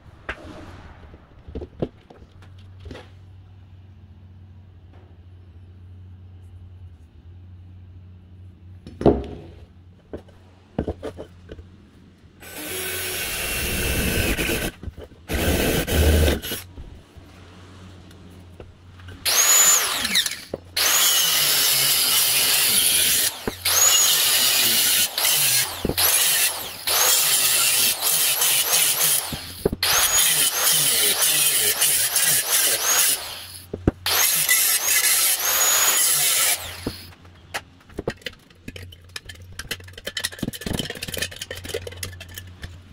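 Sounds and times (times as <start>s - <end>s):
rotary tool cutting metal: 12.4s - 16.7s, 19.1s - 37.2s.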